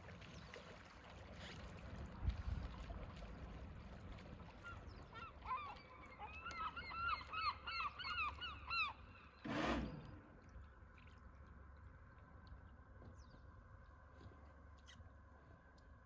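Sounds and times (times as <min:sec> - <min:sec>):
gull calling: 0:04.6 - 0:10.0.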